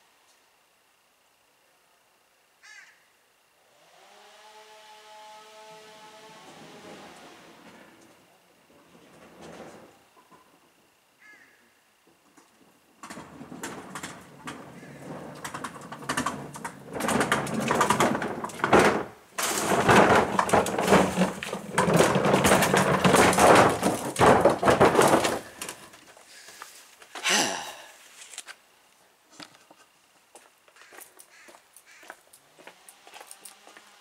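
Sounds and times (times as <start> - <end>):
electric chainsaw cutting wood: 3.6 - 8.0.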